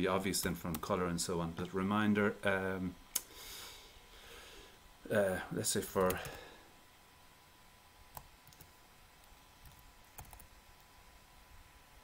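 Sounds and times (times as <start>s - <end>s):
computer keyboard keystrokes: 8.2s - 8.7s, 9.6s - 10.5s.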